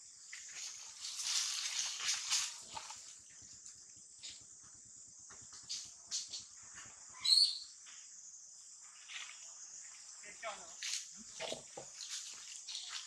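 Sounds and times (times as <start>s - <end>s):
soft rustles: 0.3s - 3.1s.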